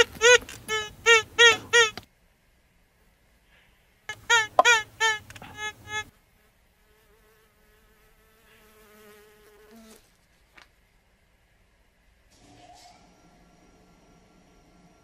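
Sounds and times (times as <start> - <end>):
metal detector buzzy tones: 0.0 - 2.0, 4.1 - 6.1.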